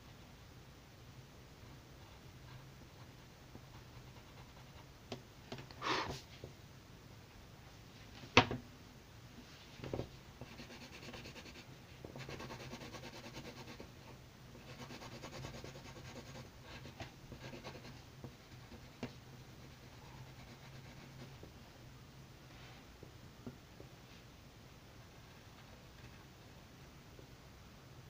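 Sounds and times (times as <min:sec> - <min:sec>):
faint low hum: 0:00.0 - 0:28.0
pencil scratching on paper: 0:03.6 - 0:04.9, 0:10.4 - 0:13.9, 0:14.6 - 0:21.4.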